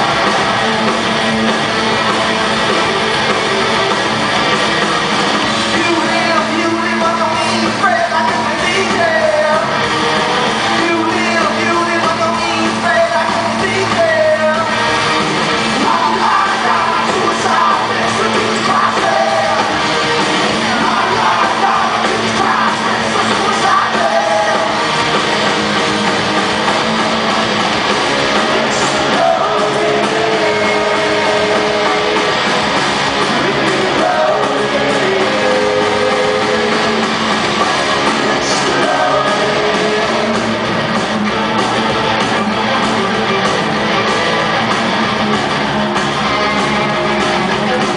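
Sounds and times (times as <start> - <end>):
live rock band through pa: 0.0 - 47.9
sung lead vocal: 5.5 - 25.2, 28.3 - 41.9.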